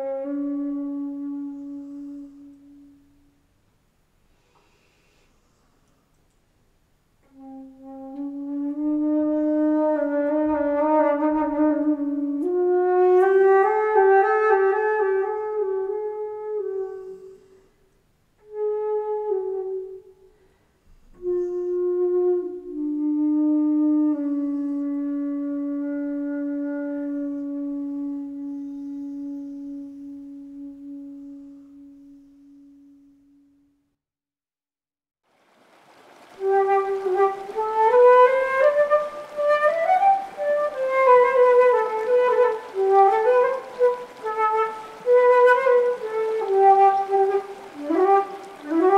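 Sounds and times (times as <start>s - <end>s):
solo flute melody: 0.0s - 3.4s, 7.2s - 17.8s, 18.4s - 33.8s, 36.2s - 48.9s.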